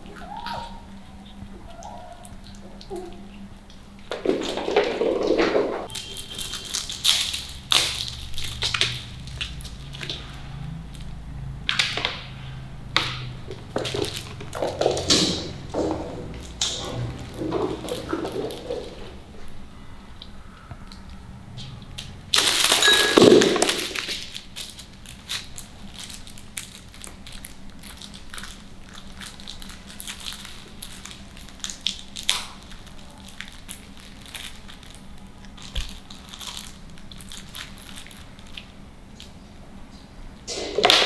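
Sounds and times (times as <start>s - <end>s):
sticker sheets crinkling: 5.8s - 12.3s, 13.4s - 19.2s, 22.3s - 39.3s.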